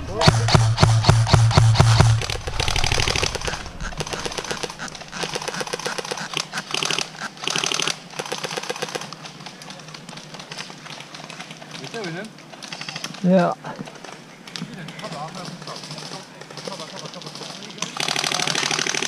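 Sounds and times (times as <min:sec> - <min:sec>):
airsoft guns firing bursts: 0:00.1 - 0:09.1, 0:15.1 - 0:19.0.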